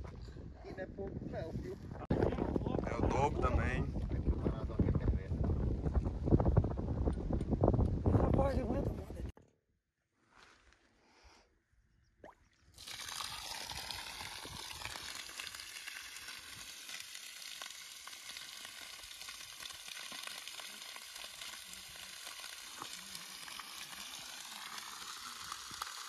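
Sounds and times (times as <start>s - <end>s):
water gushing from a pipe: 12.8s - 26.0s.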